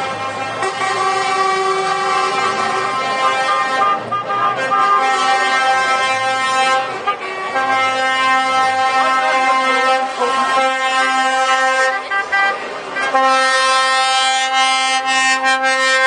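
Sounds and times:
vehicle horns blasting: 0.0 - 16.0.

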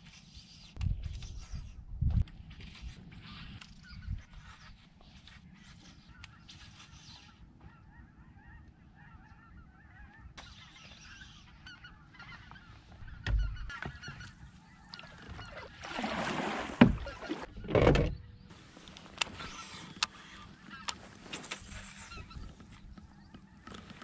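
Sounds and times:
geese honking: 7.1 - 16.4, 19.2 - 23.7
paddle splashing water: 14.9 - 17.9.

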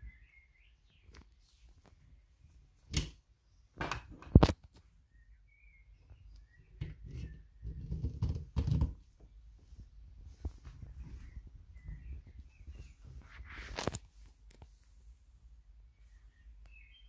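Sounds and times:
hose rubbing and rustling: 9.7 - 15.0.

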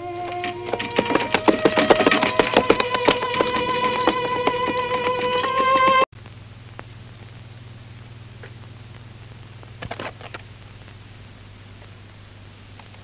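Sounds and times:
steady low hum: 6.1 - 13.0
faint hiss: 6.2 - 13.0.

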